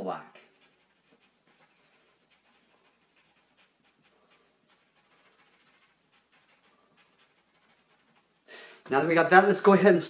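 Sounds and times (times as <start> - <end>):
marker scratching on paper: 0.4 - 8.5.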